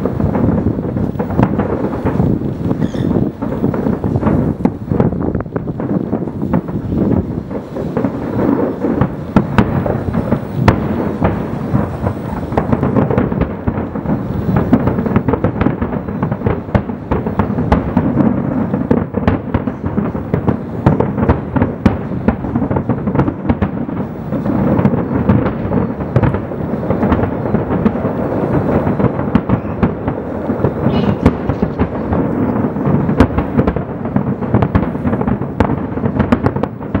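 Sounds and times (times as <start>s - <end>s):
fireworks booming: 0.0s - 37.0s
fireworks sharp cracks: 0.0s - 37.0s.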